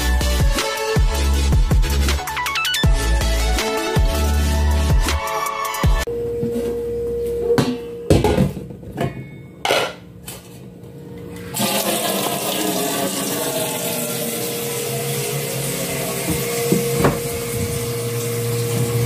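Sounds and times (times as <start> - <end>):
pot and lid clattering in sink: 8.1 - 10.0
tap water running into sink: 11.6 - 19.0.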